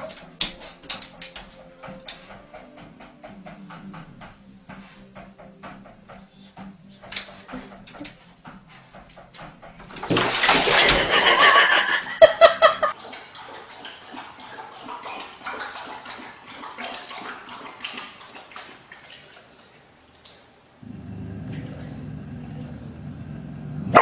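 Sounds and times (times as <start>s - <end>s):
water running into bathtub: 9.8s - 24.0s.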